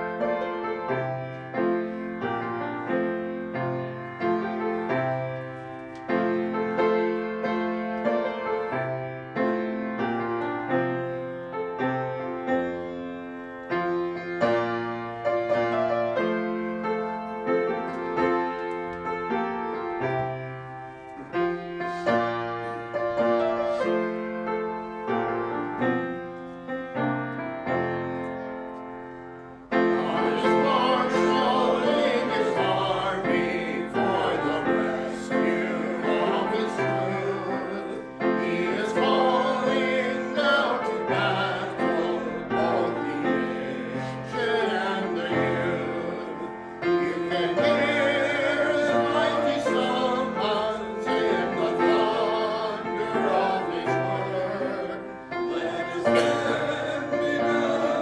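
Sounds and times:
piano: 0:00.0 - 0:58.0
person singing classical style: 0:29.6 - 0:58.0.

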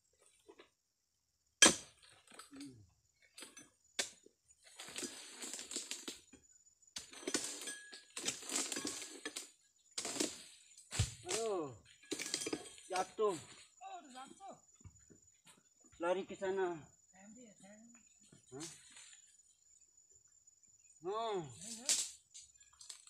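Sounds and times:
sharp crack of frond: 0:10.0 - 0:11.6, 0:21.6 - 0:23.0.

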